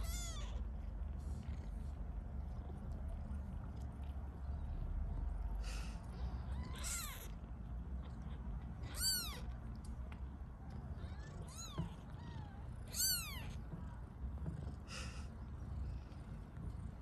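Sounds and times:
low steady rumble: 0.0 - 17.0
kitten mewing: 6.4 - 7.3, 8.9 - 9.5, 11.0 - 13.6.

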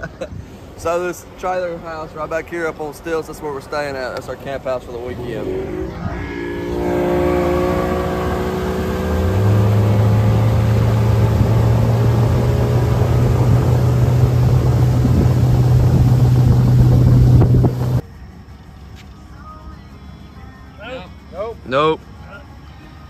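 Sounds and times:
wind and water rushing: 0.3 - 18.0
outboard motor running: 4.6 - 18.0.

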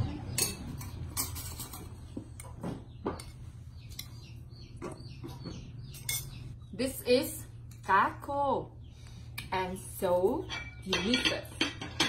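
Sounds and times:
spoons clinking on ceramic bowls: 5.9 - 6.4, 10.2 - 12.0.

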